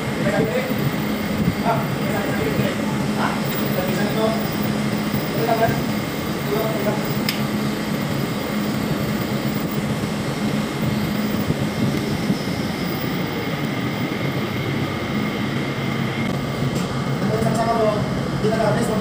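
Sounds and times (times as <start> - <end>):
machinery low hum: 0.0 - 19.0.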